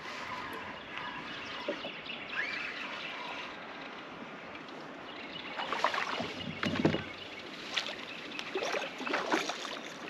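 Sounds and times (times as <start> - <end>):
water splashing: 5.6 - 10.0.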